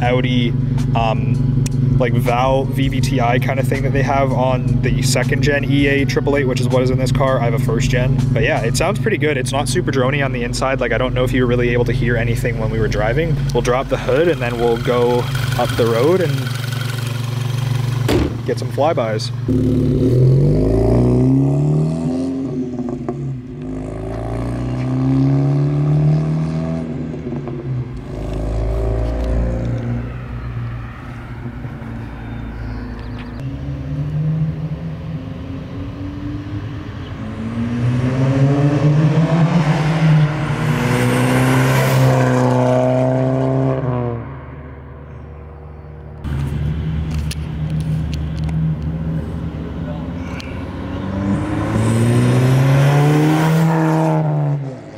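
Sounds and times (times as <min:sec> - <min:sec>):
car engine accelerating: 0:00.0 - 0:54.9
car driving past: 0:19.5 - 0:54.9.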